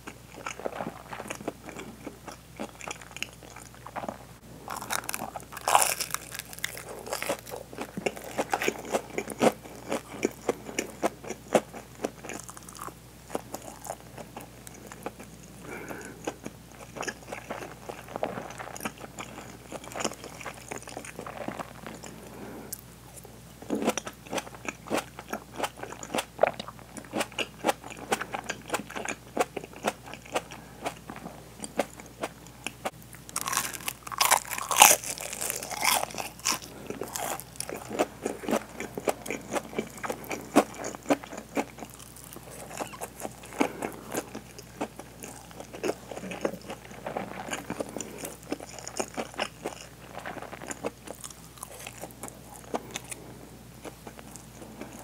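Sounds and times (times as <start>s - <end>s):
crunchy biting and chewing: 0.0s - 55.0s.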